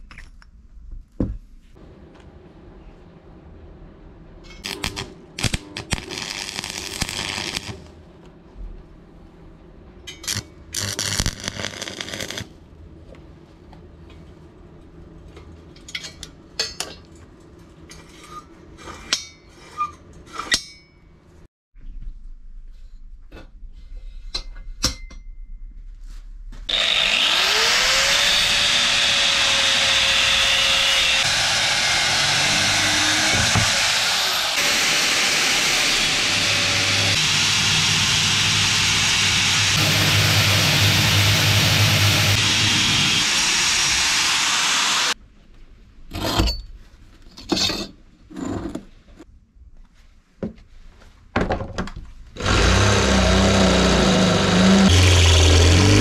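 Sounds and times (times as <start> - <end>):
electric power tool running: 26.7 - 45.2, 52.4 - 56.0.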